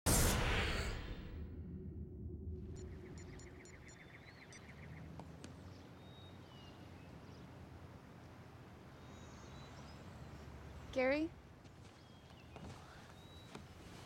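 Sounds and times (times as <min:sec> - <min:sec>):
low background rumble: 0:00.1 - 0:09.4
soft rhythmic chirring: 0:02.7 - 0:05.0
faint bird chirps: 0:02.7 - 0:07.6, 0:11.9 - 0:14.0.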